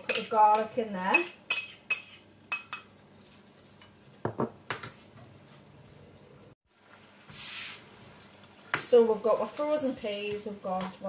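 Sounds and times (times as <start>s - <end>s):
spoon tapping frying pan: 0.0s - 3.0s.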